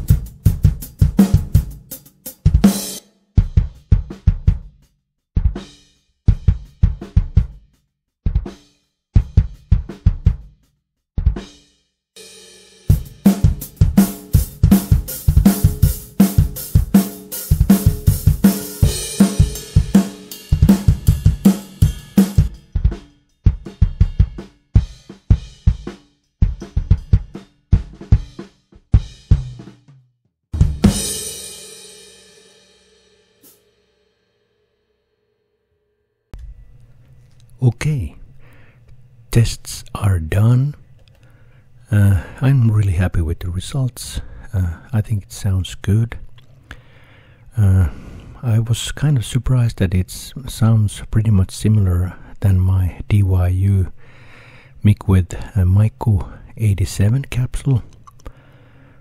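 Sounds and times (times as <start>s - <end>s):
drum kit grooves: 0.0s - 30.0s, 30.6s - 33.7s
cymbal crashes: 12.2s - 22.8s, 30.8s - 34.6s.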